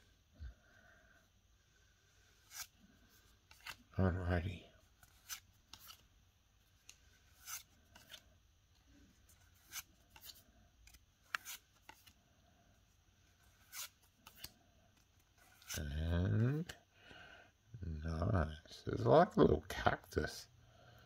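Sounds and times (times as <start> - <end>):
cards swishing and flicking: 2.2 - 3.9, 5.0 - 6.1, 6.7 - 12.2, 13.3 - 15.8.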